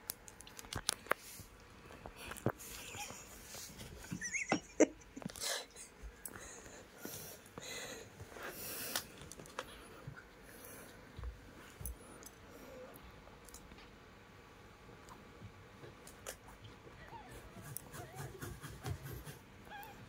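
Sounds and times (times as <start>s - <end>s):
kittens sniffing: 17.0s - 20.0s.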